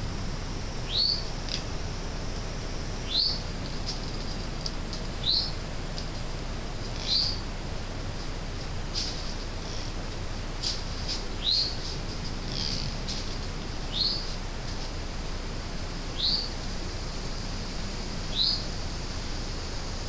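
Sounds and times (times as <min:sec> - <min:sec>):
steady hiss: 0:00.0 - 0:20.0.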